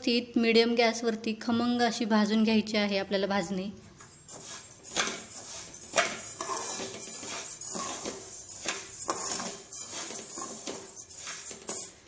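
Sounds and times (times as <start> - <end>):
spatula scraping rice in a pan: 4.1 - 12.0.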